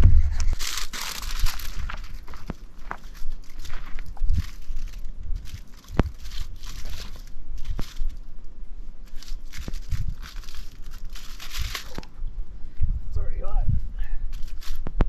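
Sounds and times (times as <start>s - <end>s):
aluminium foil crinkling: 0.4s - 8.3s, 9.0s - 12.2s, 14.3s - 14.9s.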